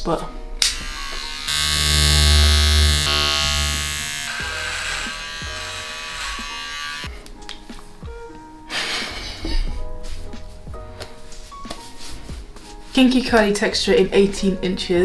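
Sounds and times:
electric hair clippers buzzing: 0.6 - 7.2.

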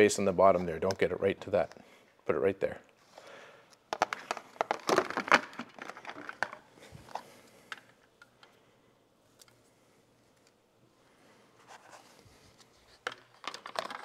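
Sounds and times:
plastic crinkling and clicking: 3.7 - 8.6, 13.0 - 14.0.

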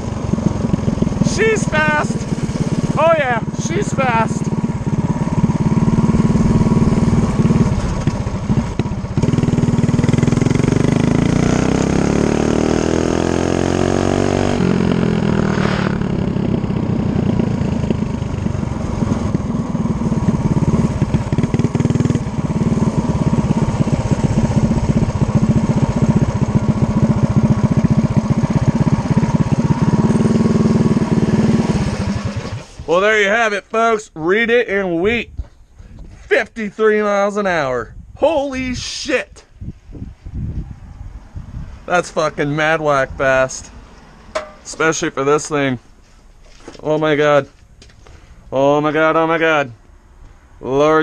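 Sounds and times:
mini bike engine running hard: 0.0 - 32.8
wind noise: 34.8 - 36.3, 37.7 - 43.8.

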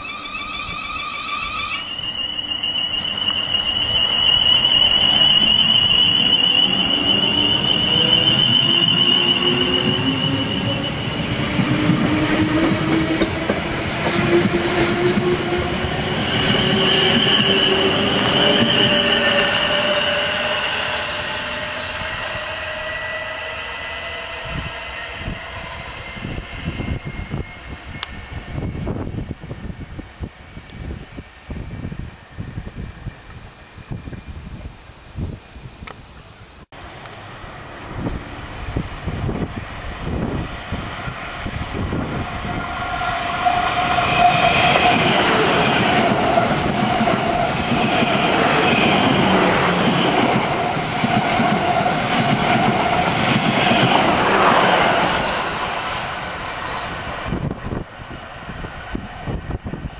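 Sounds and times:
electric train whine: 0.0 - 36.0, 36.8 - 59.9
rail noise: 0.0 - 59.9
wind gusts on microphone: 24.2 - 36.7, 37.5 - 59.9.

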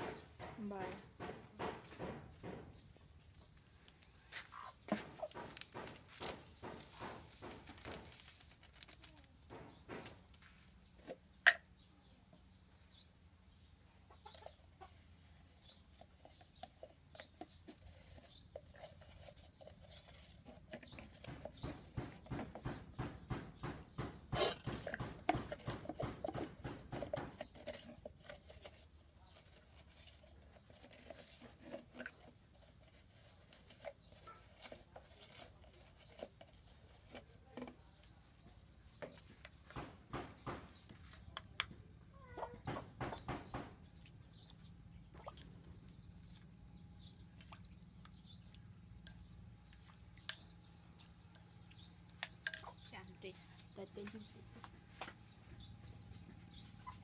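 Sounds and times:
chickens clucking: 4.3 - 8.0, 14.0 - 15.4, 38.1 - 43.7, 55.2 - 57.0.

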